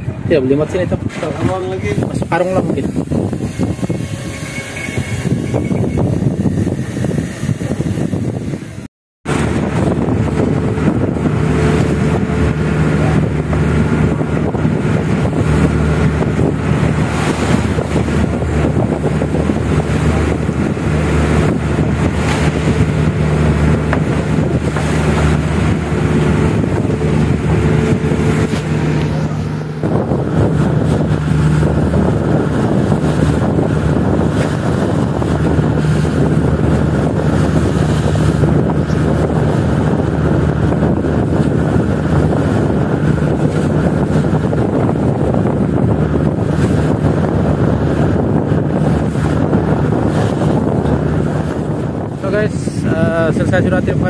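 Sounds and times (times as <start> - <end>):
boat engine humming: 0.0 - 54.0
waves breaking against hull: 0.0 - 54.0
wind buffeting microphone: 0.0 - 54.0.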